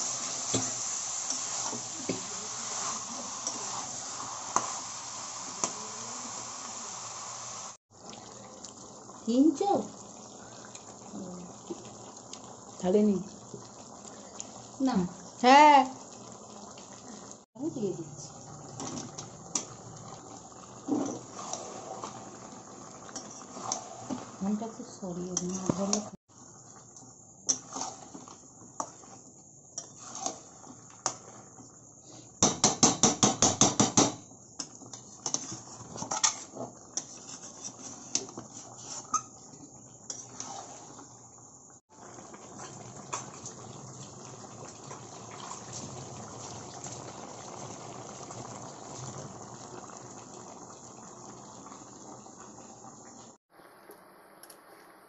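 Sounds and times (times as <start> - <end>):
pan cooking hiss: 0.0 - 55.0
utensil scraping against pan: 20.9 - 22.2, 23.1 - 24.4, 27.5 - 29.2, 29.8 - 31.2, 34.9 - 39.3, 40.1 - 41.0.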